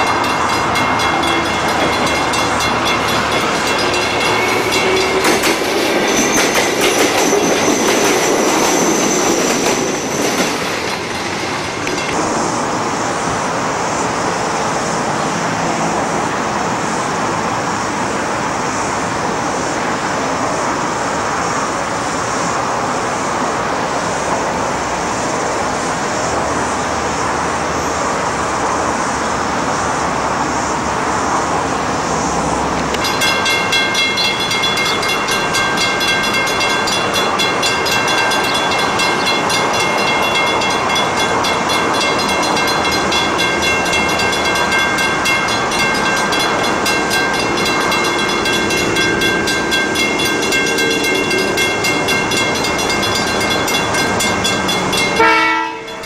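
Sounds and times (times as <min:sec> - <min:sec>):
level crossing bell ringing: 0:00.0 - 0:05.4, 0:32.9 - 0:56.0
diesel locomotive engines: 0:00.0 - 0:56.0.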